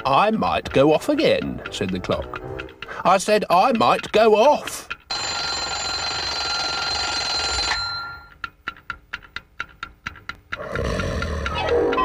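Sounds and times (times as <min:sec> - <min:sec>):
rapid clicks: 0:00.0 - 0:06.8, 0:07.5 - 0:12.0
alarm clock bell ringing: 0:05.1 - 0:08.4.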